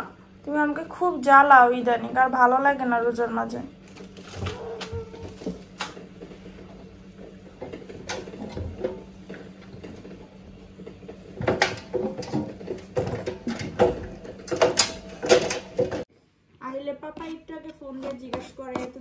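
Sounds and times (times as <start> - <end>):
knocks and scrapes in washing machine drum: 4.1 - 16.1.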